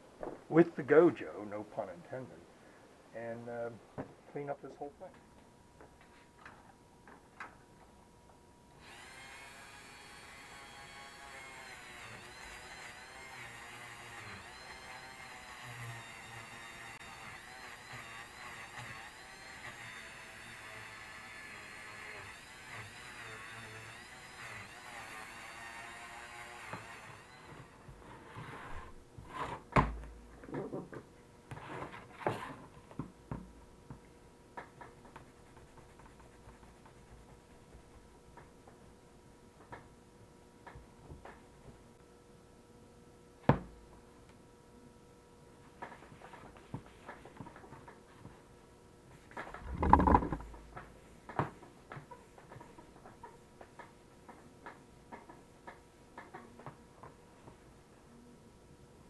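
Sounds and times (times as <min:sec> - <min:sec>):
rotary tool whining: 0:08.8 - 0:29.0, 0:49.5 - 0:50.6
plug knocking against workbench: 0:49.7 - 0:50.5.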